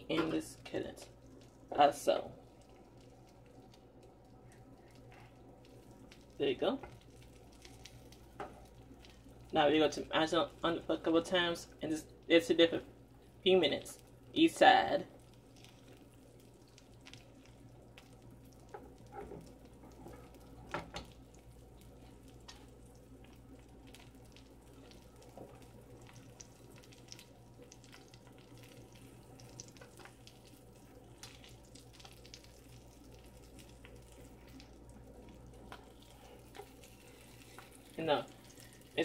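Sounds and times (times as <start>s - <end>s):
low steady hum: 0.0s - 39.0s
butter sizzling in a skillet: 0.1s - 39.0s
small pops and crackles: 2.4s - 9.6s, 15.0s - 39.0s.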